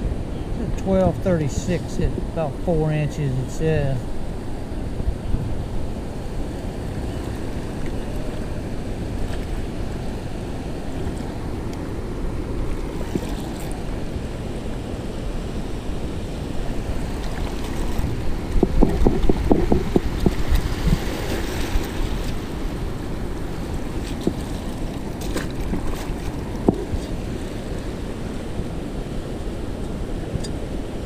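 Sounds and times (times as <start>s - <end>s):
surf washing: 0.0s - 31.0s
wind buffeting microphone: 0.0s - 31.0s
shallow water splashing: 5.9s - 14.1s, 16.4s - 28.5s.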